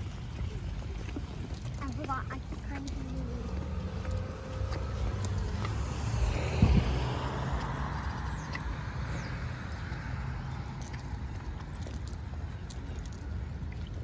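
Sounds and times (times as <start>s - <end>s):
steady low rumble: 0.0s - 14.0s
car driving past: 3.1s - 11.8s.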